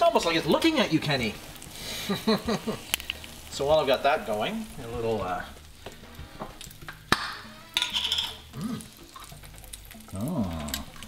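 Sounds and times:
low sizzle of frying: 0:00.0 - 0:11.0
spoon clinking and scraping jar: 0:07.8 - 0:08.4.

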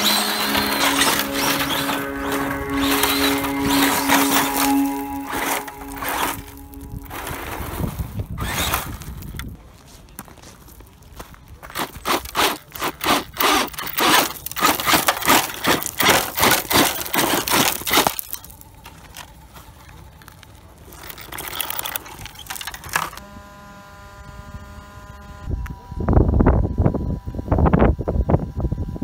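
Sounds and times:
steady multi-pitched whine: 0:00.0 - 0:08.4
gravel crunching and scraping: 0:00.0 - 0:23.2.

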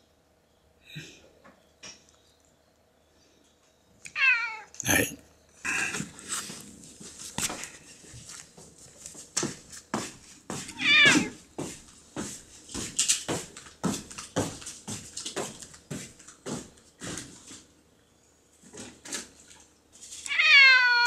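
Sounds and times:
cat meowing: 0:04.1 - 0:04.8, 0:10.7 - 0:11.4, 0:20.3 - 0:21.0.

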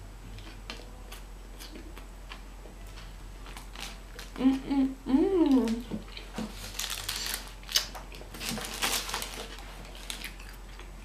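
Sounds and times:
chewing with wet mouth clicks: 0:10.2 - 0:11.0.

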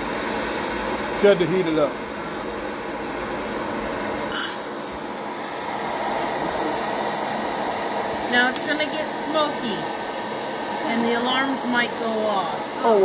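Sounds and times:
blower rushing: 0:00.0 - 0:13.0
coffee beans dropping with hiss: 0:04.3 - 0:09.0.

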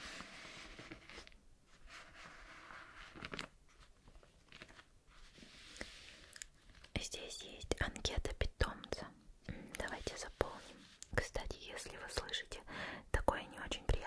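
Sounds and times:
paper pages rustling: 0:00.0 - 0:06.9.

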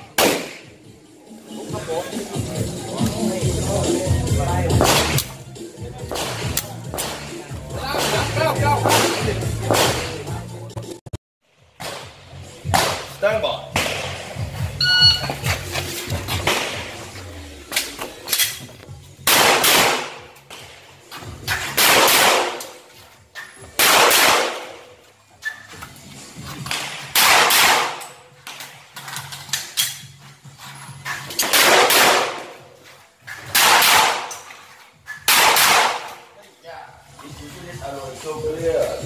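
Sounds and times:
pistol shots with ringing tail: 0:00.2 - 0:00.7, 0:19.3 - 0:20.3, 0:21.6 - 0:22.8, 0:23.8 - 0:24.9, 0:26.7 - 0:28.2, 0:31.4 - 0:32.6, 0:33.5 - 0:34.4, 0:35.2 - 0:36.2.

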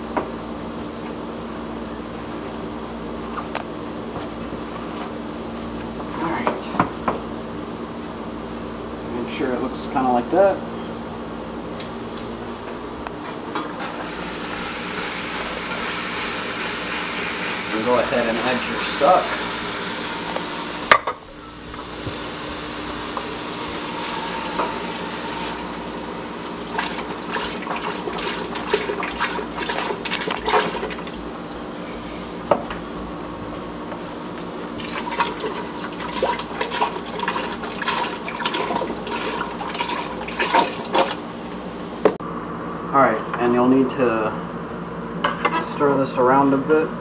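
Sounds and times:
liquid pouring into a pot: 0:26.6 - 0:31.1, 0:34.8 - 0:41.2.

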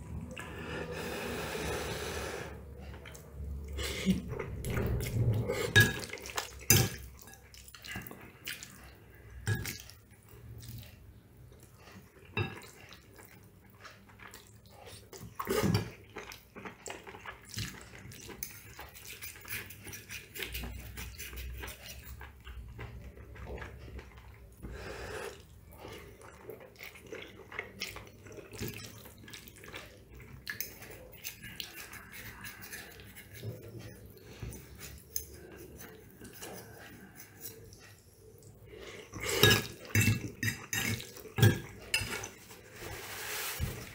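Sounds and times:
wet eating sounds: 0:00.0 - 0:43.9.

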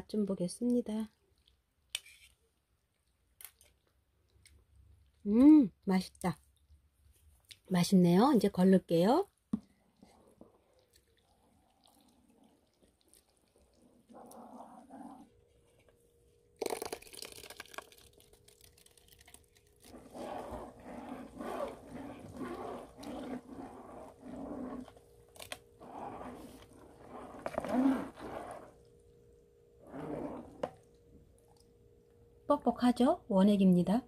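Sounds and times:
faint steady hum: 0:00.0 - 0:34.0
wet squelching strokes: 0:09.7 - 0:15.9, 0:17.1 - 0:29.0, 0:29.8 - 0:30.9
ladle swishing: 0:18.7 - 0:25.0, 0:25.8 - 0:28.8, 0:29.8 - 0:30.7.

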